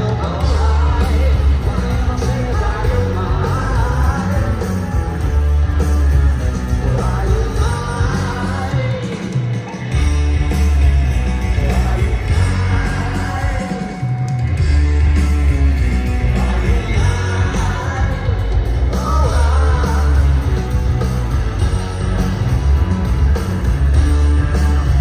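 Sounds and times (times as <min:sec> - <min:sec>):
person singing: 0:00.0 - 0:05.0, 0:06.7 - 0:09.4, 0:16.2 - 0:20.6
live rock band: 0:00.0 - 0:25.0.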